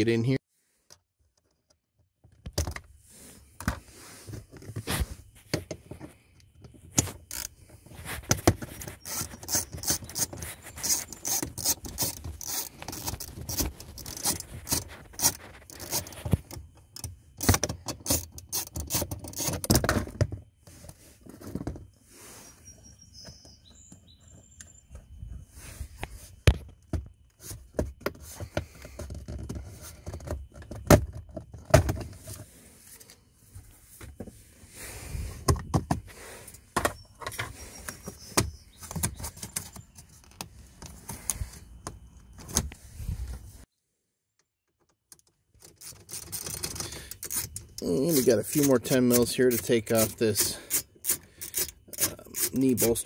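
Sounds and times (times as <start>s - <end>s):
plastic trim clicks and scrapes: 6.9s - 20.1s, 45.6s - 52.9s.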